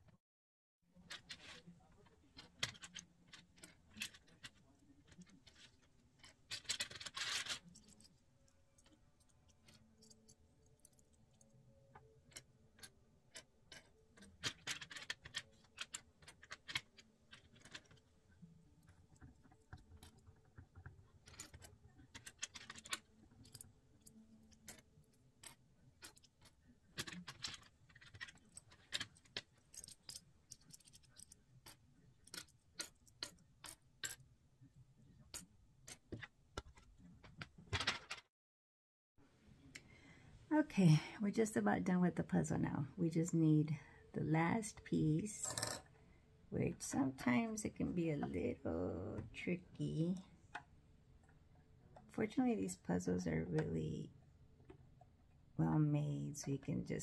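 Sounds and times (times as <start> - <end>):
plastic pieces rattling together: 1.1 - 8.2, 12.3 - 18.1, 18.9 - 34.3
plastic pieces clicking on wooden table: 12.0 - 18.0, 19.1 - 34.2.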